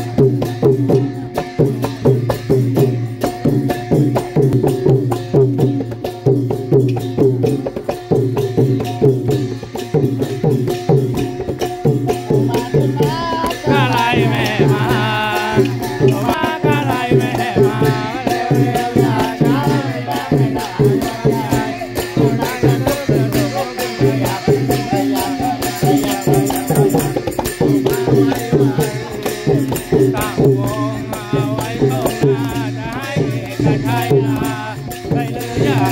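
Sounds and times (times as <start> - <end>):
drum band playing: 0.0 - 35.9
hand cymbals clashing: 0.0 - 35.9
voices singing: 12.0 - 35.9.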